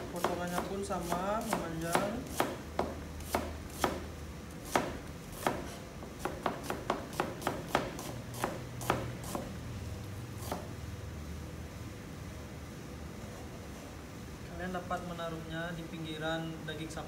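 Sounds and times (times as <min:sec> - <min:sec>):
cleaver chopping on cutting board: 0:00.0 - 0:09.5, 0:10.4 - 0:10.7.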